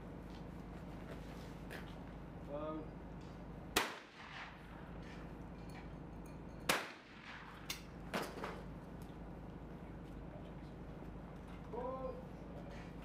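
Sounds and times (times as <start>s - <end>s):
shotgun shots: 3.7s - 4.9s, 6.7s - 7.7s.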